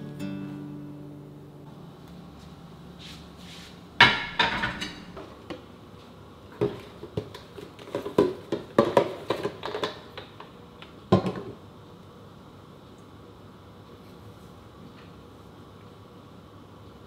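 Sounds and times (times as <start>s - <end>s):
dishes clinking in a sink: 4.0s - 5.2s
plastic bottles knocking on countertop: 6.6s - 10.0s, 11.1s - 11.5s.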